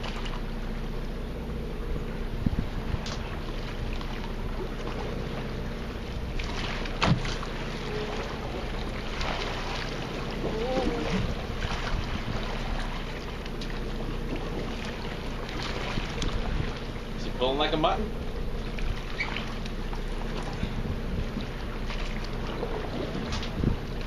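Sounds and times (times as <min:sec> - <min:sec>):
boat machinery humming: 0:00.0 - 0:24.0
short wavering whine: 0:00.0 - 0:24.0
wind on microphone: 0:02.3 - 0:03.6, 0:10.4 - 0:12.8, 0:15.8 - 0:16.9, 0:20.5 - 0:21.6, 0:22.7 - 0:24.0.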